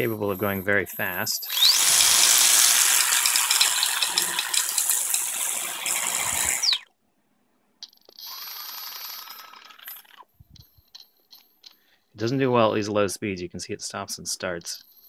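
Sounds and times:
small motor rattling whir: 0:01.5 - 0:06.9, 0:08.2 - 0:10.3.

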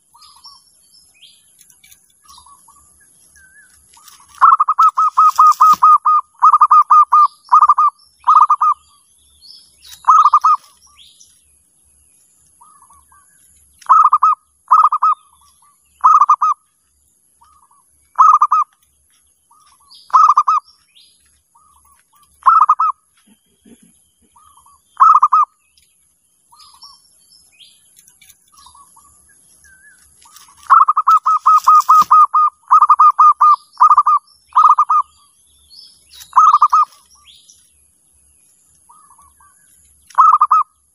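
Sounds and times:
small birds chirping: 0:00.0 - 0:40.9
dove cooing: 0:04.0 - 0:08.8, 0:09.9 - 0:10.8, 0:13.8 - 0:15.3, 0:16.0 - 0:16.6, 0:17.5 - 0:18.7, 0:20.1 - 0:20.6, 0:22.4 - 0:25.5, 0:30.3 - 0:35.1, 0:36.3 - 0:37.0, 0:40.1 - 0:40.6.

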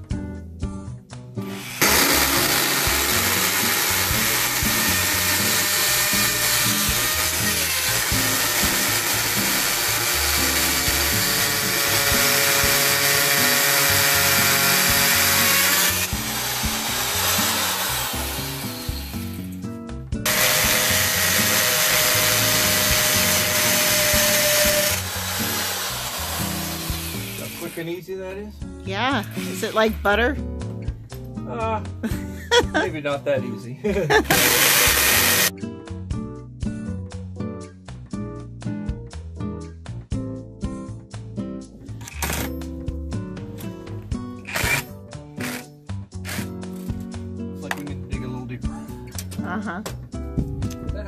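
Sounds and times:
hammer drill boring into brick: 0:01.5 - 0:19.5, 0:20.3 - 0:27.8, 0:34.3 - 0:35.5, 0:42.0 - 0:42.5, 0:44.4 - 0:46.5.

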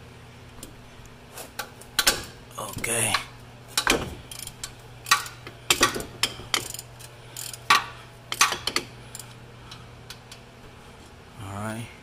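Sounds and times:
ratchet ratcheting: 0:03.8 - 0:09.4.

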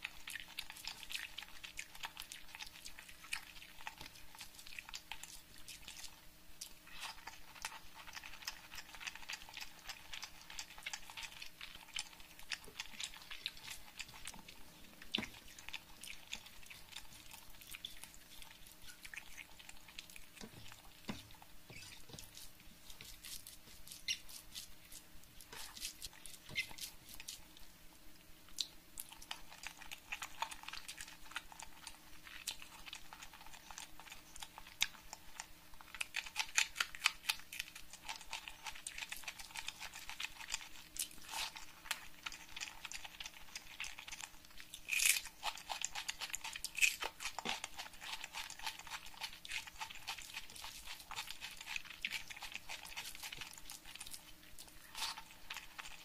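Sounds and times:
fingers squishing rice: 0:00.0 - 0:27.8, 0:28.4 - 0:56.0
wet chewing: 0:00.0 - 0:56.0
mouth clicks and smacks: 0:28.5 - 0:30.9.

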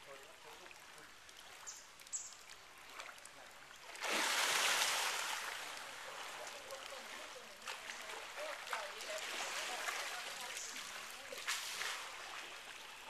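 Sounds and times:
churning water: 0:00.0 - 0:13.0
heavy water splash: 0:03.9 - 0:07.0, 0:07.6 - 0:12.6.

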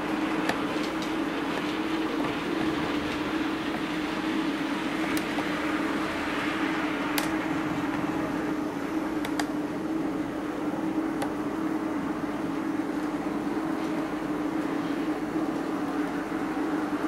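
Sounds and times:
wheels rolling on track: 0:00.0 - 0:08.8
sharp clicks: 0:09.2 - 0:09.5.

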